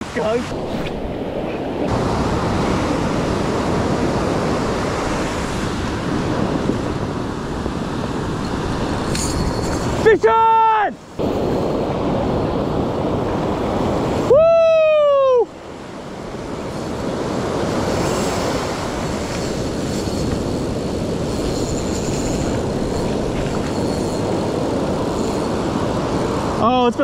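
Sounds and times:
ocean surf: 0.0 - 27.0
wind buffeting microphone: 0.0 - 27.0
drawn-out high cry: 14.3 - 15.5.

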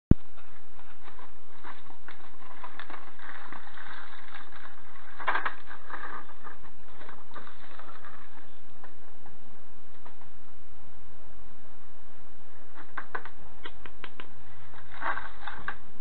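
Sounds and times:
dog crunching dry food: 0.2 - 9.1, 12.7 - 15.8.

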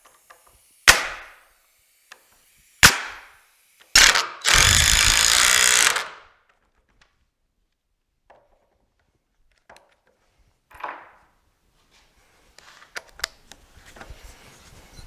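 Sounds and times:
nail gun shots: 0.8 - 1.4, 2.8 - 6.2
cordless drill driving screw: 3.8 - 6.3.

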